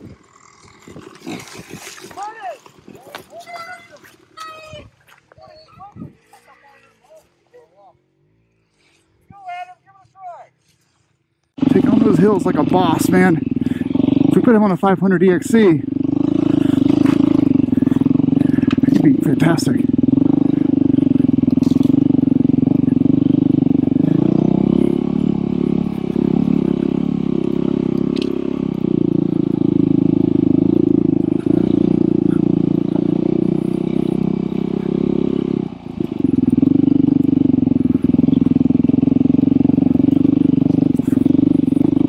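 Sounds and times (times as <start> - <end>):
dirt bike engine: 0.0 - 10.4, 11.5 - 42.0.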